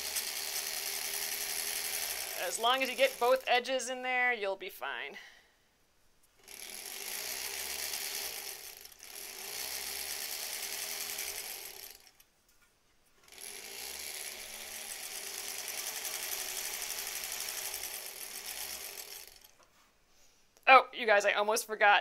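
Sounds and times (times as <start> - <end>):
sewing machine stitching: 0.0 - 3.5, 6.4 - 12.2, 13.2 - 19.6.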